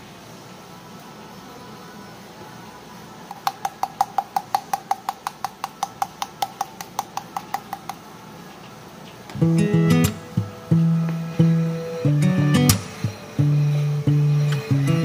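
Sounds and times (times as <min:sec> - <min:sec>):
sugar sifter ringing clicks: 0:03.3 - 0:08.0
strummed acoustic guitar music: 0:09.4 - 0:15.0.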